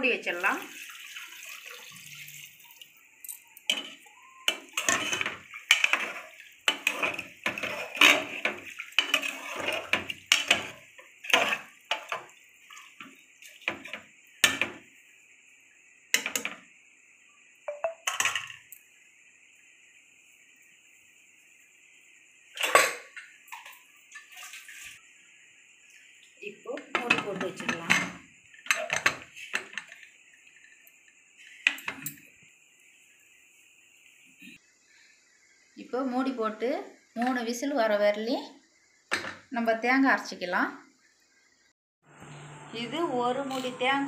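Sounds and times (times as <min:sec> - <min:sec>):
faint high hiss: 0:00.0 - 0:09.2
metal ladle scraping a pot: 0:03.7 - 0:12.2.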